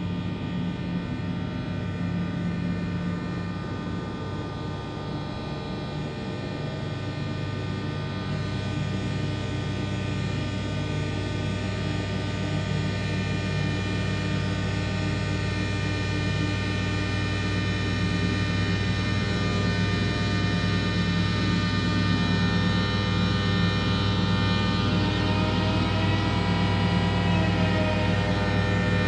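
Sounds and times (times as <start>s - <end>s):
electronic drone music: 21.8s - 29.0s.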